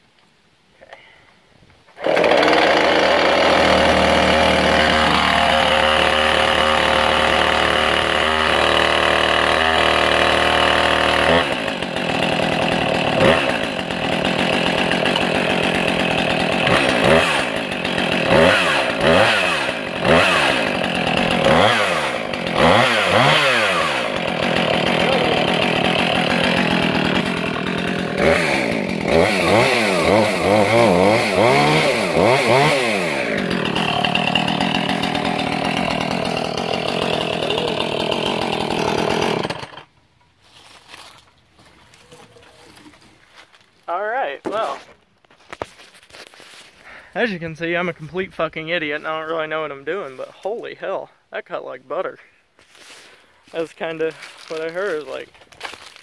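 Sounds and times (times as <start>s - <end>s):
chainsaw revving and cutting: 2.0s - 39.9s, 52.8s - 56.0s.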